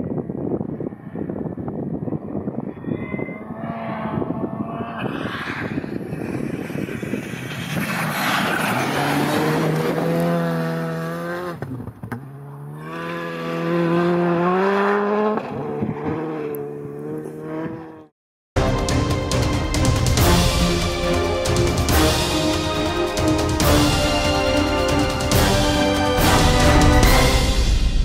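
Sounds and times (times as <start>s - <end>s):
rally car engine at full throttle: 0.0s - 18.1s.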